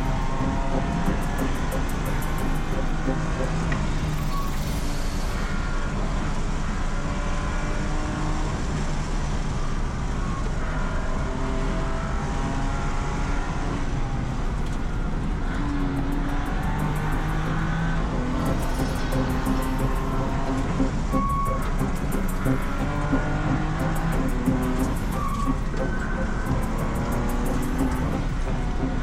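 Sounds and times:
race car engine revving: 0.0s - 9.4s, 10.3s - 29.0s
road and wind noise: 0.0s - 29.0s.

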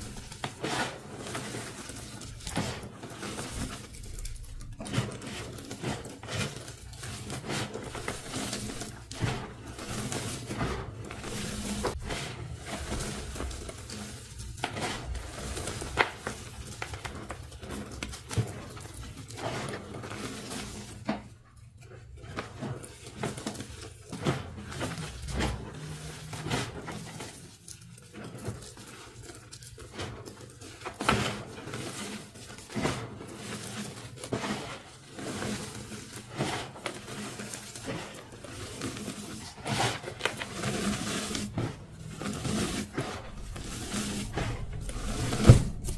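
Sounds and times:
chalk pieces crackling: 0.0s - 18.2s
hands crunching chalk: 0.0s - 20.6s, 24.4s - 45.9s.

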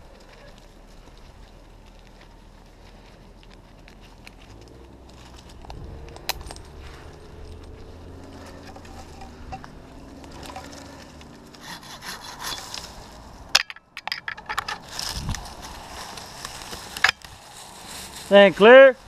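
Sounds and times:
rope scraping against bark: 0.0s - 13.5s, 14.8s - 19.0s
climbing gear clicks and knocks: 3.4s - 11.6s, 13.5s - 15.4s.

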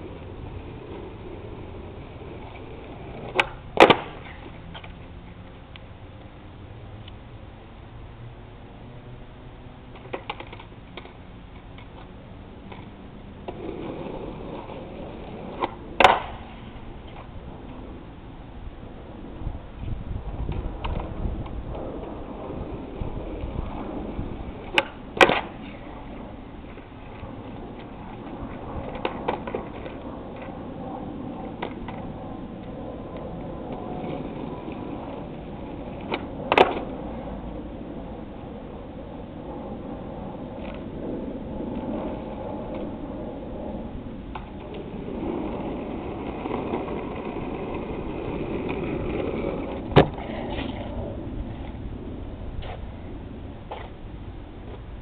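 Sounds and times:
skateboard clacking on road: 0.0s - 6.3s, 9.8s - 18.1s, 19.0s - 55.0s
skateboard rolling on asphalt: 0.0s - 55.0s
skateboard tail pop and slap: 3.2s - 5.0s, 10.0s - 11.2s, 15.6s - 17.3s, 24.6s - 25.8s, 36.0s - 36.9s, 49.7s - 50.9s.

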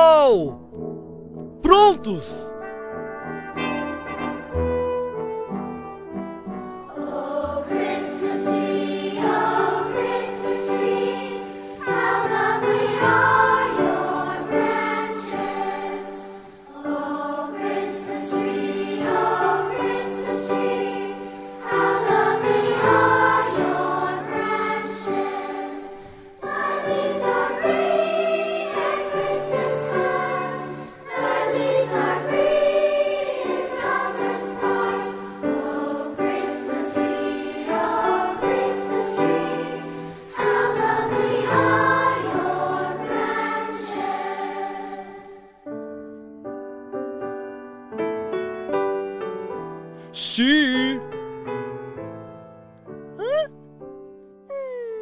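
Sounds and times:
voices singing in harmony: 6.9s - 45.5s.

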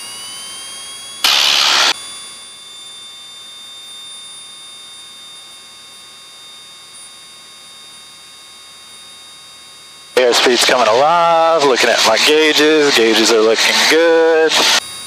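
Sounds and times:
aircraft engine at full throttle: 0.0s - 3.3s, 10.2s - 15.0s.

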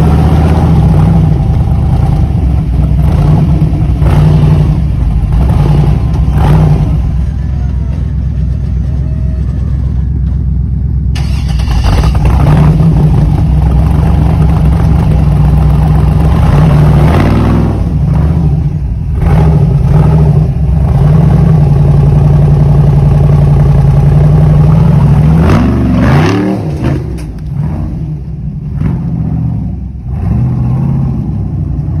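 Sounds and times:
buggy engine revving under load: 0.0s - 10.4s, 11.1s - 21.8s, 24.6s - 32.0s.

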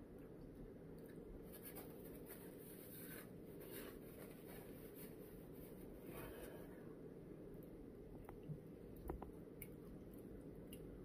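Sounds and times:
low room hum: 0.0s - 11.0s
scratching and rustling in container: 1.4s - 6.5s.

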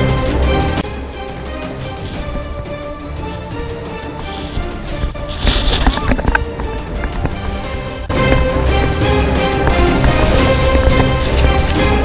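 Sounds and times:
background music: 0.0s - 12.0s.

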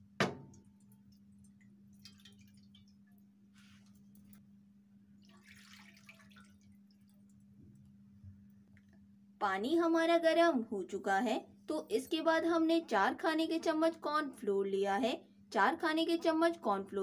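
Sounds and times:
water splashing into a frying pan: 2.0s - 3.1s, 5.2s - 7.1s.

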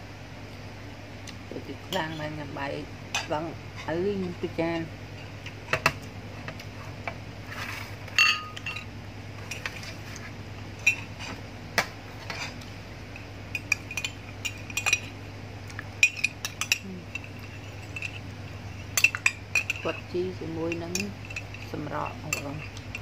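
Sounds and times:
metal spoon clinking on plate and mug: 8.2s - 8.9s, 13.6s - 15.1s, 16.0s - 18.2s, 18.8s - 20.0s, 20.7s - 23.0s.

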